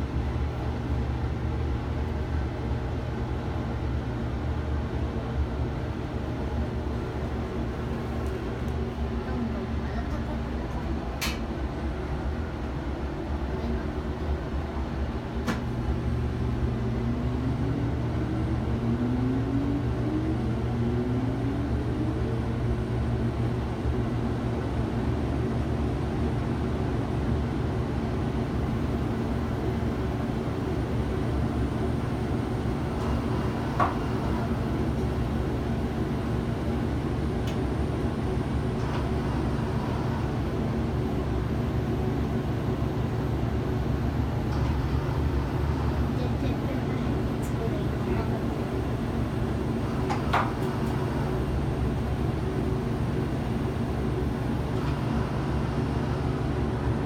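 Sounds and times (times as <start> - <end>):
low mechanical hum: 0.0 - 57.0.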